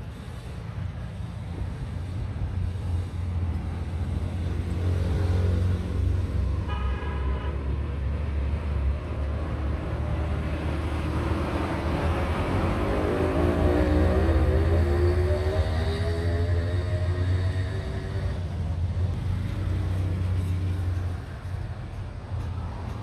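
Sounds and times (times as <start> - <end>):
road traffic rumble: 0.0 - 23.0
vehicle horn: 6.6 - 7.6.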